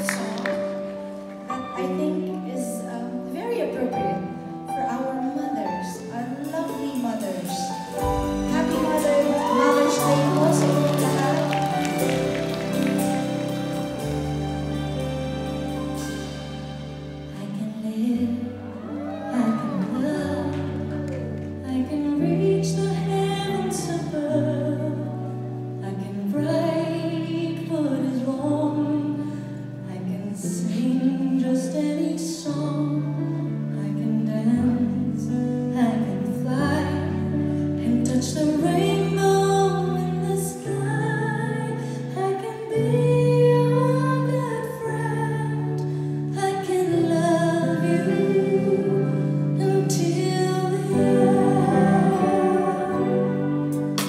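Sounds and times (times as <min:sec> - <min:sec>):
woman singing into microphone: 0:04.9 - 0:11.8, 0:17.3 - 0:25.2, 0:25.8 - 0:53.7
band accompaniment: 0:06.4 - 0:21.6, 0:51.0 - 0:54.0.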